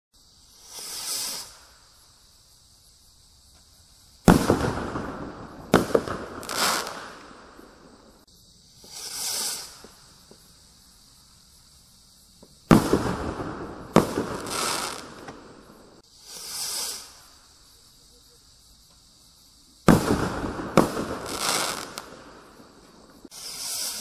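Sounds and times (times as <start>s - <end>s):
firework crackling: 0.2s - 2.4s, 4.0s - 11.4s, 12.4s - 17.8s, 19.8s - 24.0s
rocket hissing whoosh: 0.3s - 2.0s, 4.2s - 10.3s, 12.7s - 17.6s, 19.9s - 24.0s
firework rocket bang: 4.2s - 7.4s, 12.7s - 17.2s, 19.9s - 22.4s.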